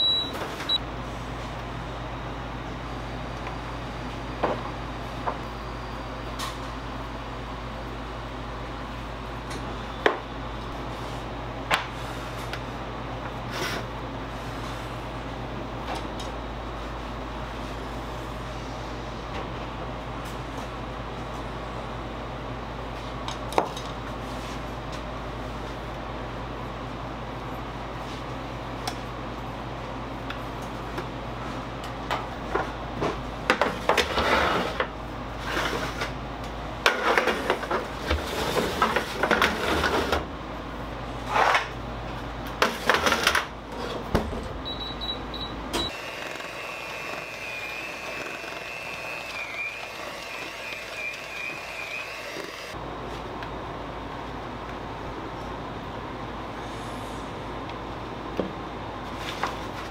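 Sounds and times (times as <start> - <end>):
short electronic beeps: 0.0 - 0.8, 44.6 - 45.9
machine hum: 0.0 - 59.9
steady high beep tone: 44.6 - 45.9.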